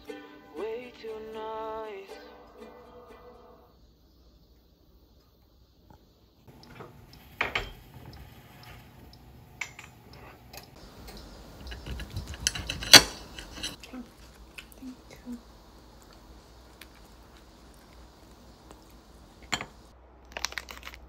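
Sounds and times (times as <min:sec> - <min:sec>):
dishes and utensils clattering: 0:06.5 - 0:09.0, 0:09.6 - 0:14.0, 0:19.4 - 0:19.9.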